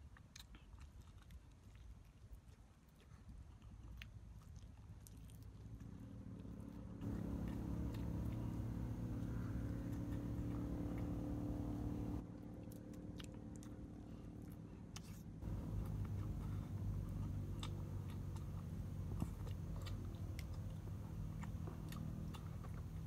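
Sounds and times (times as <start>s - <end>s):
person chewing fried chicken: 0.0s - 11.8s, 12.4s - 23.0s
steady low hum: 7.0s - 23.0s.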